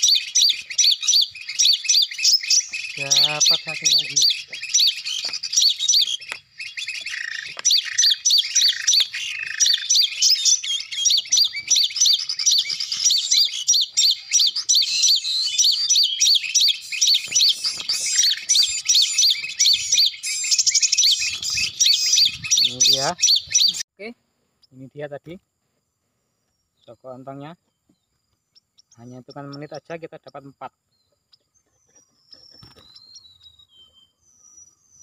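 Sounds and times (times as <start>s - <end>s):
bird chirps: 0.0s - 23.8s, 26.3s - 35.0s
lower bird notes: 0.0s - 23.8s.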